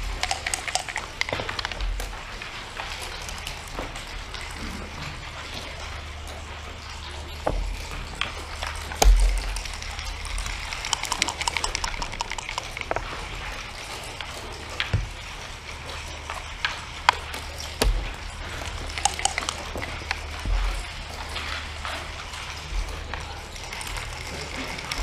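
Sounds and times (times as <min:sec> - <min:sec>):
dice rattling: 0:00.0 - 0:01.7, 0:08.9 - 0:13.9, 0:17.0 - 0:21.3
pieces clacking on wooden board: 0:00.0 - 0:04.9, 0:07.5 - 0:25.0
low hum: 0:00.0 - 0:25.0.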